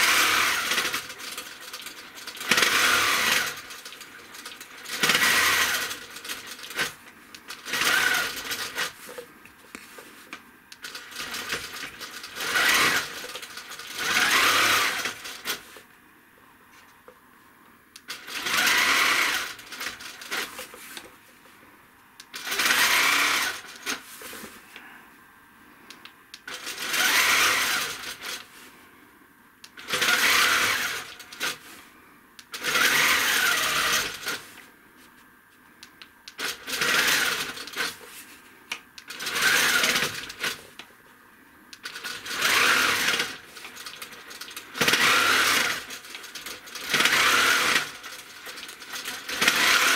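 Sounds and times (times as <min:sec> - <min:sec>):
quilting machine stitching: 0:00.0 - 0:09.2, 0:10.8 - 0:15.8, 0:18.1 - 0:21.0, 0:22.3 - 0:24.4, 0:26.5 - 0:28.5, 0:29.8 - 0:31.7, 0:32.5 - 0:34.5, 0:36.3 - 0:38.0, 0:39.0 - 0:40.7, 0:41.8 - 0:49.9.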